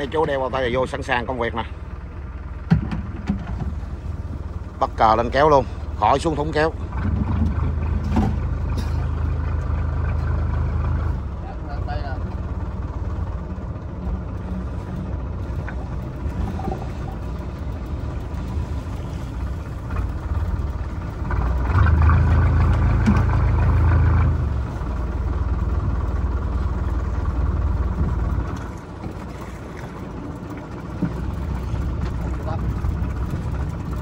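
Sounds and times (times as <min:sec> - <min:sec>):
boat engine running: 0:00.0 - 0:34.0.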